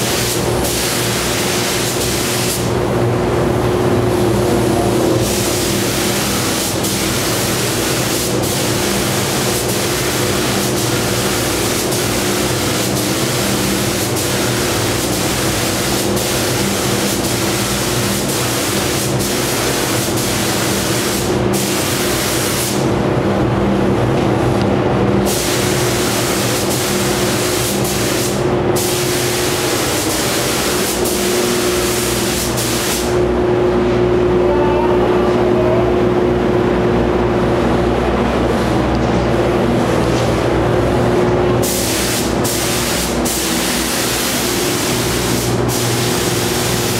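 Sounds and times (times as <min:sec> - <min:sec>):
paint spray gun hissing: 0:00.0 - 0:02.7, 0:05.2 - 0:22.8, 0:25.3 - 0:33.2, 0:41.6 - 0:46.9
steady low hum: 0:00.0 - 0:46.9.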